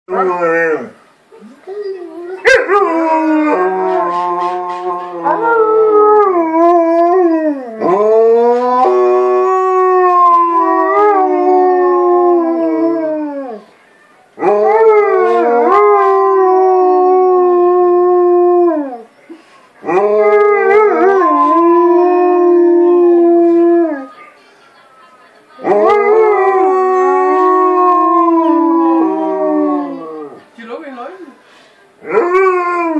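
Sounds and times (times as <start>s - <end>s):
dog howling: 25.6s - 30.4s.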